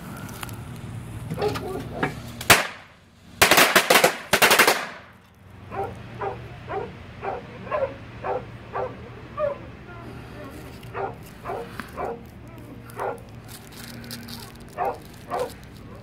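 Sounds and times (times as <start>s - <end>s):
dog barking: 1.4s - 2.0s, 5.7s - 9.7s, 10.8s - 12.3s, 12.9s - 13.4s, 14.7s - 16.0s
firecrackers banging: 1.9s - 5.3s.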